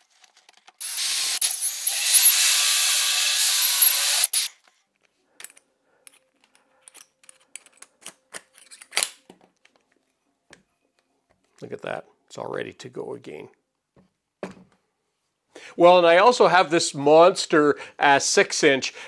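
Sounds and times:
drill cutting through wood: 0:00.8 - 0:04.5.

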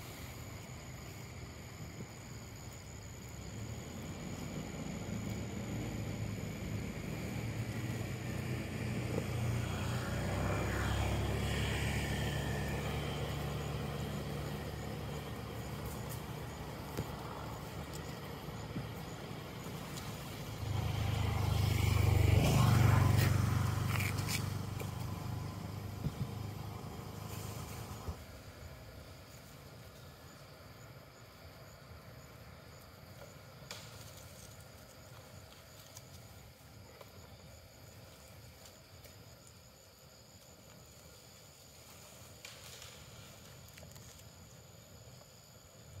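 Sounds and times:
vehicle engine humming: 0:00.0 - 0:29.9.

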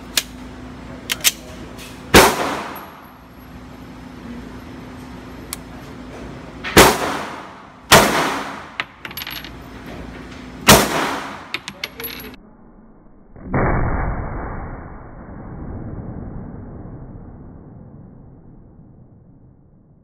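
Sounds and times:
pistol shots ringing indoors: 0:02.1 - 0:03.0, 0:06.7 - 0:08.8, 0:10.6 - 0:11.5
dull drawn-out boom: 0:12.7 - 0:20.0.

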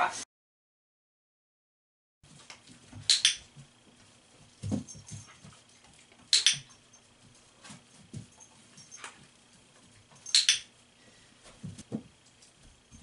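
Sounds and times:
dog footsteps on mat: 0:02.3 - 0:10.3, 0:11.4 - 0:13.0.

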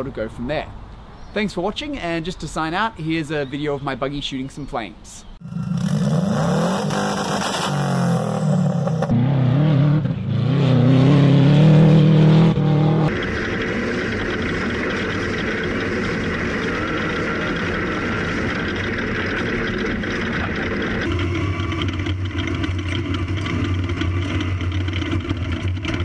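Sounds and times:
buggy engine droning: 0:05.4 - 0:26.0
low engine hum with flutter: 0:12.5 - 0:26.0.

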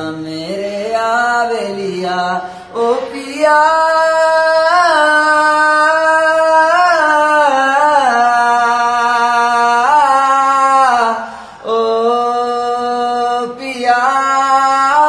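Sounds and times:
man singing unaccompanied: 0:00.0 - 0:15.0.

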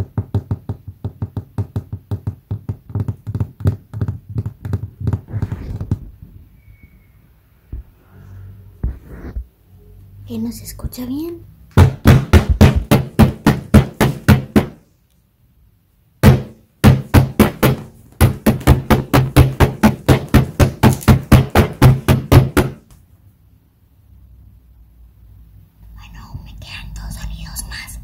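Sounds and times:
rapid tapping: 0:16.2 - 0:22.8.

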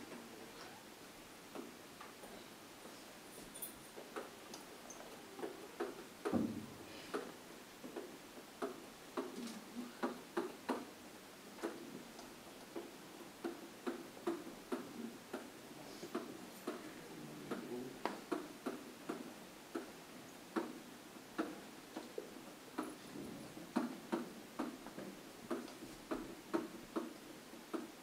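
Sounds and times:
dull knock: 0:06.3 - 0:06.8.

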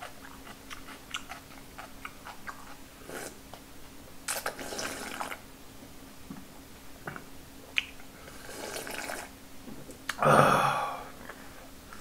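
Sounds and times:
slurping broth: 0:03.0 - 0:03.4, 0:04.3 - 0:05.4, 0:08.2 - 0:09.3.

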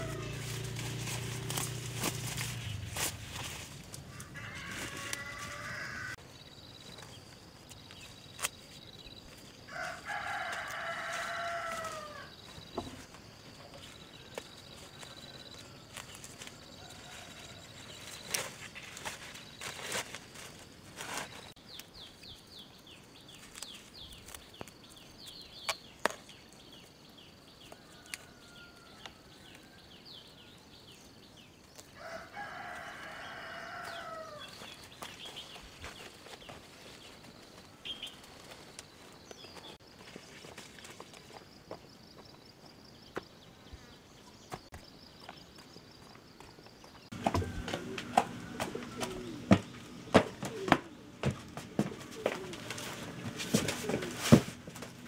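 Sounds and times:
rooster crowing: 0:00.0 - 0:00.8, 0:04.1 - 0:06.2, 0:09.7 - 0:12.4, 0:32.0 - 0:34.6, 0:47.1 - 0:50.7.

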